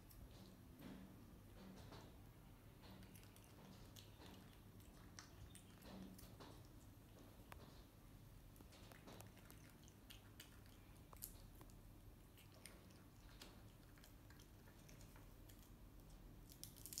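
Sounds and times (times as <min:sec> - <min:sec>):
monkey chewing fruit: 0:02.8 - 0:07.8, 0:08.6 - 0:17.0.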